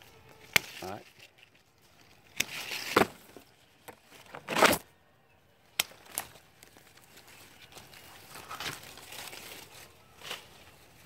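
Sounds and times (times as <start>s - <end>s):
pruning shears snipping branches: 0.3s - 1.4s, 2.2s - 3.1s, 5.7s - 7.1s.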